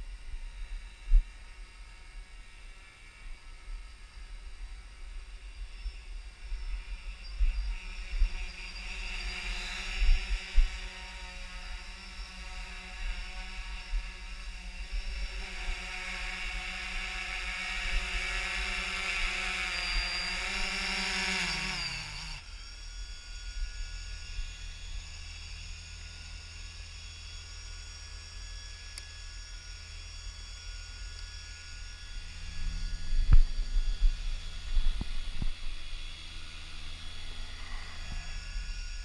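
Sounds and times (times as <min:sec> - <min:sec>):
drone propellers humming: 0:00.0 - 0:39.0
wind buffeting microphone: 0:32.4 - 0:36.7.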